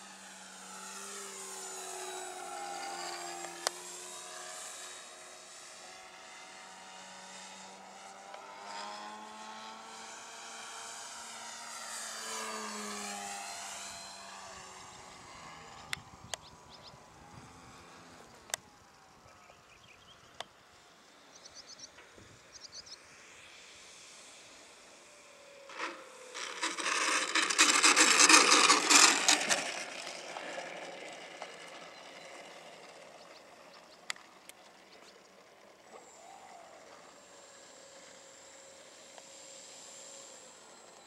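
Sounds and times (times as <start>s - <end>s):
faint chirps: 18.2s - 23.2s
rough rushing-scraping noise: 25.8s - 31.8s.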